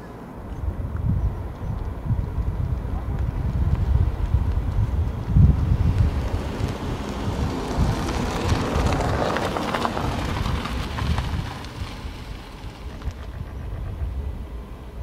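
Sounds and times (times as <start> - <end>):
wind buffeting microphone: 0.4 - 15.0.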